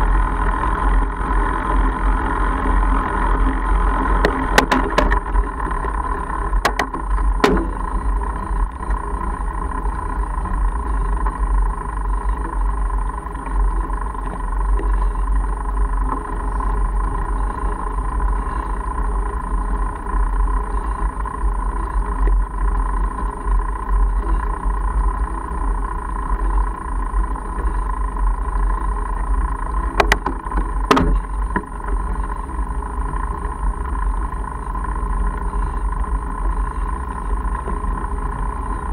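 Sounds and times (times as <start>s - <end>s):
sharp knocks of bike jolting: 4.3s - 5.4s, 6.6s - 8.2s, 30.0s - 31.6s.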